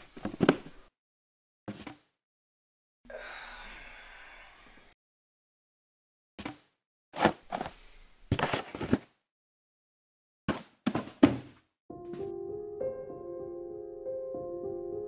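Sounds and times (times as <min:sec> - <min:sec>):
long breathy sigh: 0:03.1 - 0:05.0
short thuds and knocks: 0:10.5 - 0:11.6.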